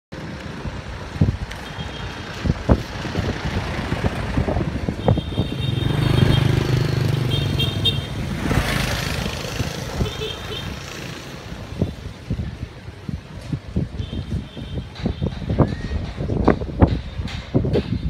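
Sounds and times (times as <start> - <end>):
vehicle engine humming: 0.1 - 13.3
cars and motorbikes passing: 0.2 - 17.7.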